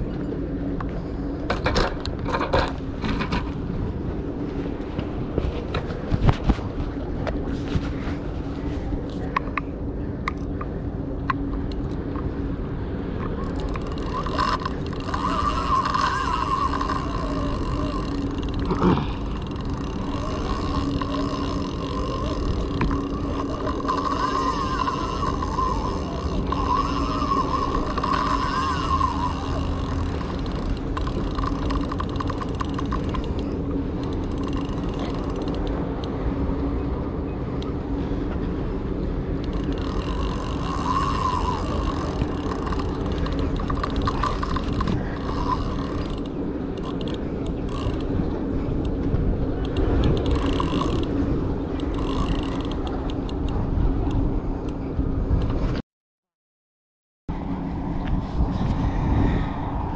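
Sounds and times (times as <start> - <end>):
wind rumble on microphone: 0.0 - 55.8, 57.3 - 59.9
fishing reel drag clicking: 13.3 - 36.1, 39.4 - 48.2, 49.6 - 51.2, 51.8 - 54.2.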